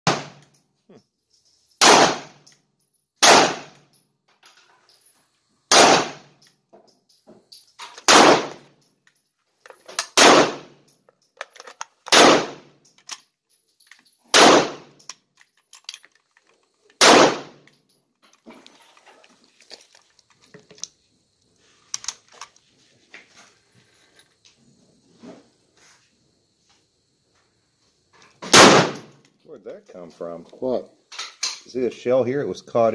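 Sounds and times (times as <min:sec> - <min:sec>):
sharp loud bangs with ringing: 0:00.1 - 0:00.4, 0:01.8 - 0:02.4, 0:03.2 - 0:03.8, 0:05.7 - 0:06.3, 0:08.1 - 0:08.6
rifle handling clicks and knocks: 0:03.6 - 0:05.2, 0:06.3 - 0:24.5, 0:30.5 - 0:31.7.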